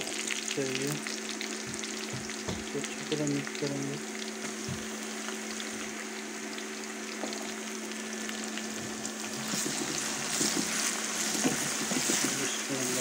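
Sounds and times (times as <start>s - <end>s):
low steady hum: 0.0s - 13.0s
onions sizzling in hot oil: 0.0s - 13.0s
wooden spatula stirring: 9.3s - 13.0s.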